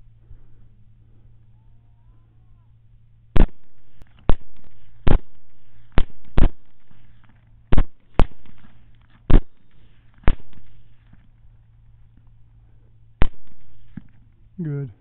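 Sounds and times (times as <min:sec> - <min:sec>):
rifle shots: 0:03.4 - 0:11.2, 0:13.2 - 0:14.2.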